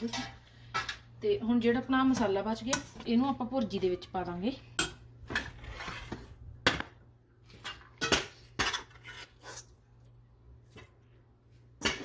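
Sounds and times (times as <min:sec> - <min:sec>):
metal utensils clinking on pans: 0:07.6 - 0:09.0.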